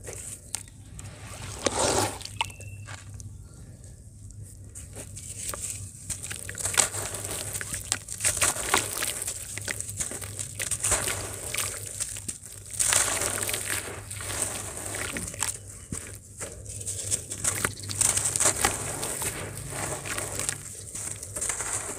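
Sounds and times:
wet sand crunching and crackling: 0.0 - 3.3, 4.3 - 21.9
crumbs falling into water: 5.4 - 16.2, 17.0 - 21.9.

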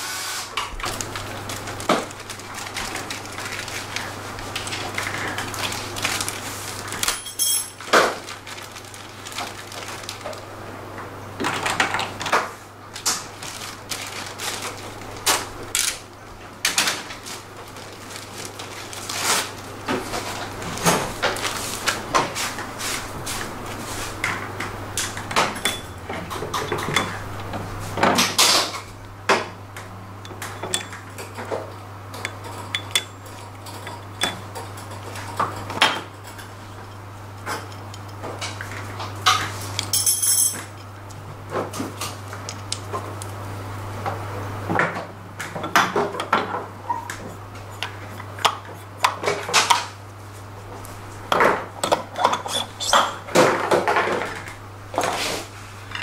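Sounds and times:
metal parts clinking on steel bench: 7.0 - 7.8, 39.9 - 40.6.

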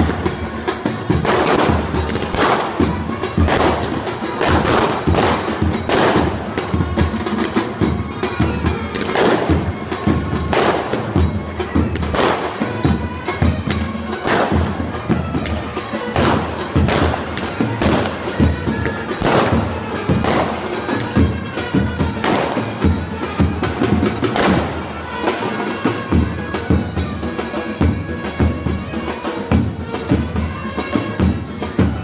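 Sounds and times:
cymbal crash: 0.0 - 8.0, 8.7 - 23.0
pounding drums: 0.0 - 32.0.

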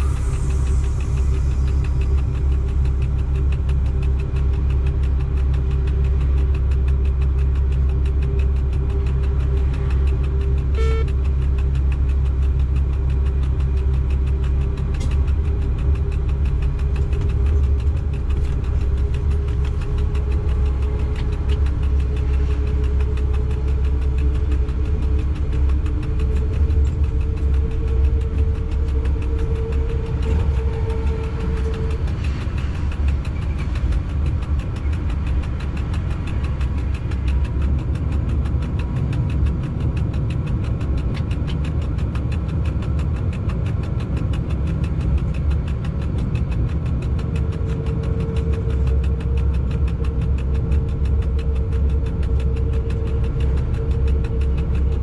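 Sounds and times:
locomotive cab rumble: 0.0 - 55.0
brief beep: 10.8 - 11.1.

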